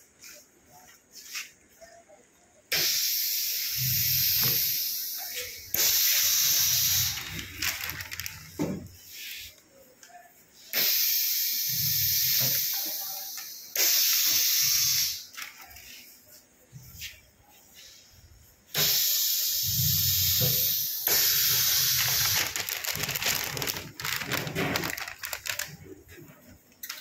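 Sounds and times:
compressed air hissing: 2.7s - 9.5s, 10.7s - 15.3s, 18.7s - 25.7s.

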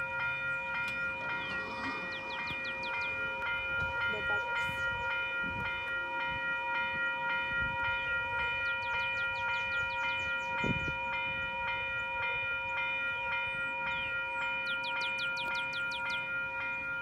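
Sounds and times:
level crossing warning bell: 0.0s - 17.0s
bird chirping: 1.4s - 3.4s, 8.6s - 11.2s, 14.4s - 16.4s.

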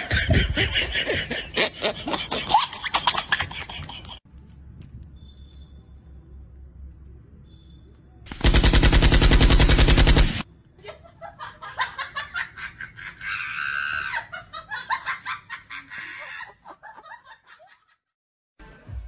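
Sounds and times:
rapid automatic gunfire: 8.3s - 10.4s.

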